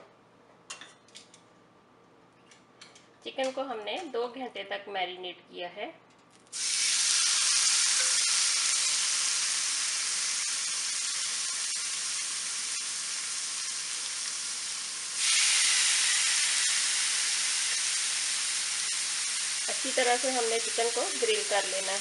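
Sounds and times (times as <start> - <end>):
chicken sizzling on a grill pan: 6.6 - 22.0.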